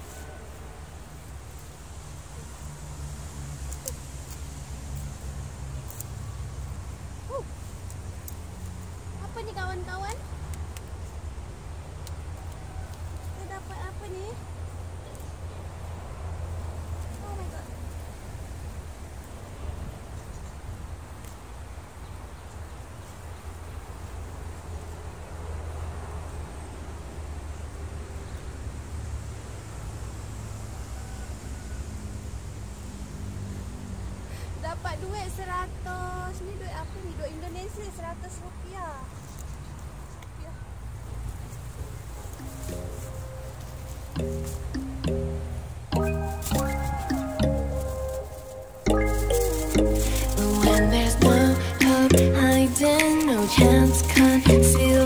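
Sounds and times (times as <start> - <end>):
hands rustling through plastic litter: 46.1 - 55.0.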